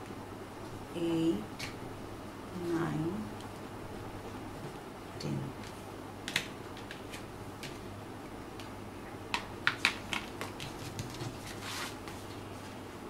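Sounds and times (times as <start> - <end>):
paper crackling: 9.8 - 12.4
paper rustling: 10.0 - 12.8.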